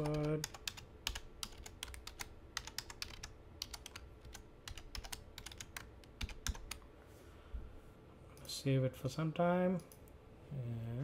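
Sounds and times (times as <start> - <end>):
keyboard keys tapping: 0.0 - 6.8.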